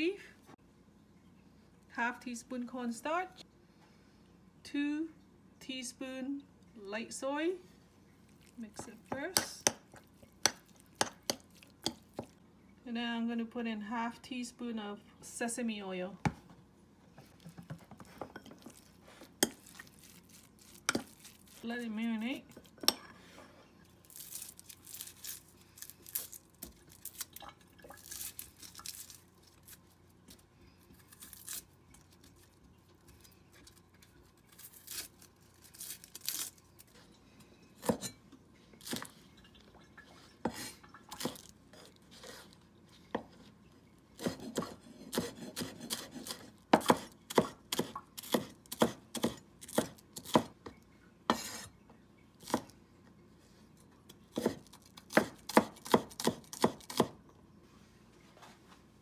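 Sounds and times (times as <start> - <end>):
knife peeling onion: 24.0 - 27.3, 28.0 - 37.1, 38.8 - 39.1, 44.2 - 50.5, 54.3 - 57.2
knife chopping on wooden board: 37.8 - 38.2, 44.2 - 50.5, 54.4 - 57.2.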